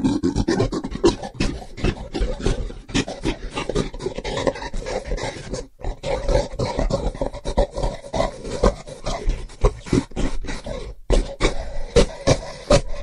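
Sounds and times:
gorilla grunting and roaring: 0.0 - 13.0.

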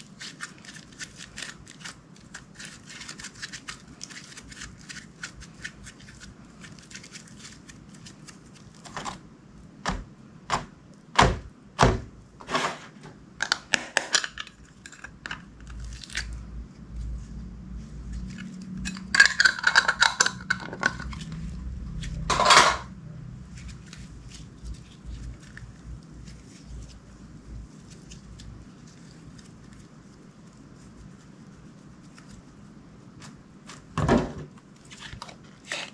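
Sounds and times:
slime crackling: 0.0 - 8.9.

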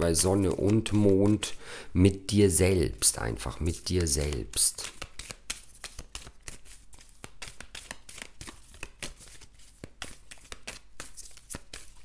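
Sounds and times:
cards being shuffled: 0.0 - 1.6, 3.0 - 12.0.

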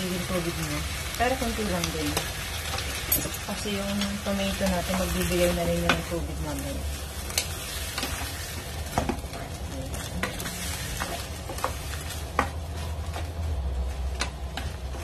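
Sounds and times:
vegetables sizzling in a pan: 0.0 - 15.0
spatula tapping and scraping pan: 10.2 - 13.3.

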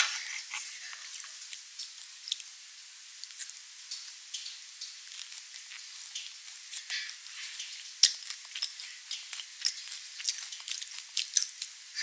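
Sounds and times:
crunchy chewing: 0.0 - 2.6, 3.2 - 12.0.

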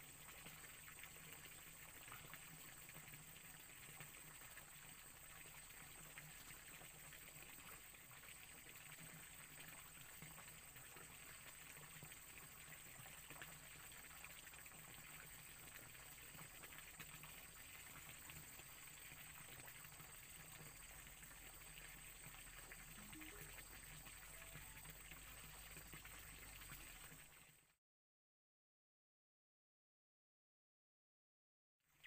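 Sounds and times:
small stream trickling: 0.0 - 27.8
high-pitched drone: 23.0 - 23.6.

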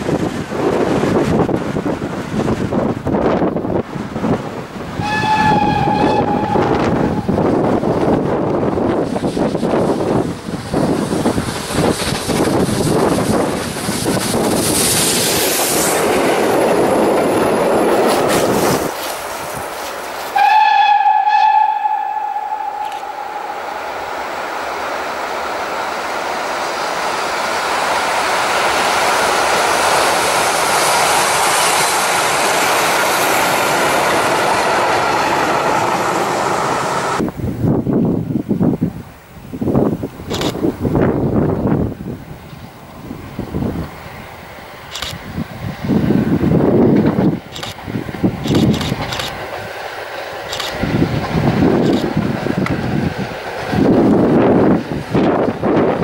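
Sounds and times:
rail clatter: 0.0 - 37.2, 46.5 - 56.0
steam locomotive rumble: 0.0 - 56.0
steam whistle blast: 5.0 - 7.2, 20.4 - 23.6.

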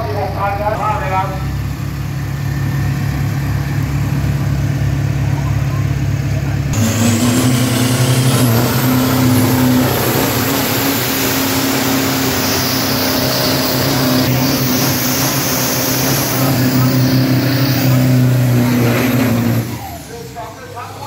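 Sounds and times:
truck engine at high revs: 0.0 - 21.0
tyres spinning and hissing: 6.8 - 20.2.

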